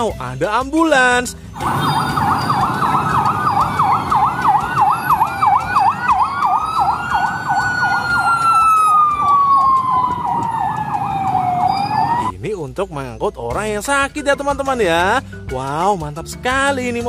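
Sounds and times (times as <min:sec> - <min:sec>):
street traffic: 0:01.3 - 0:12.4
ambulance siren fast yelp: 0:01.6 - 0:12.3
ambulance siren slow wail: 0:01.6 - 0:12.3.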